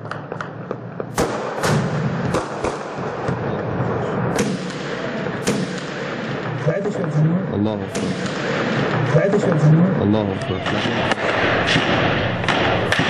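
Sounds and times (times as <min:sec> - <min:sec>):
gunfire echoing between buildings: 0:01.0 - 0:07.1, 0:07.8 - 0:09.6, 0:10.6 - 0:13.0.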